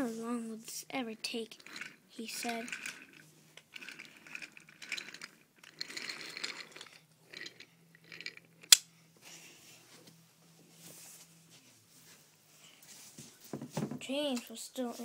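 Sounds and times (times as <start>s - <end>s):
toy train rattling on wooden track: 1.2s - 8.8s.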